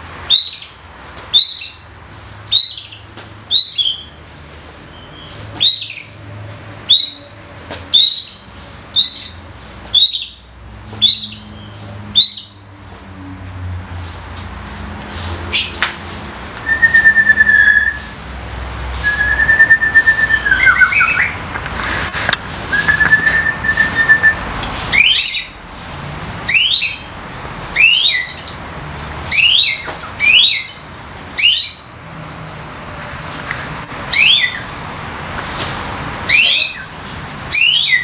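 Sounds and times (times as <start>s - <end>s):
bird singing whistles: 0.3s - 0.7s, 5.0s - 6.0s, 6.9s - 7.3s, 7.9s - 8.4s, 10.0s - 10.4s, 16.6s - 18.1s, 19.0s - 21.4s, 22.7s - 24.4s, 29.3s - 30.7s, 31.4s - 31.8s, 34.1s - 34.6s, 36.3s - 36.9s, 37.5s - 38.0s.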